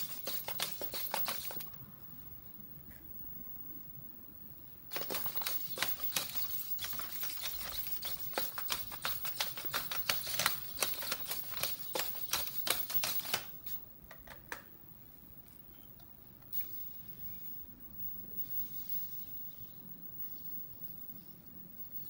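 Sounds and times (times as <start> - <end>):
plastic feet tapping tile floor: 0.0 - 1.7, 4.9 - 14.6
servos clicking: 0.0 - 1.8, 4.9 - 13.8.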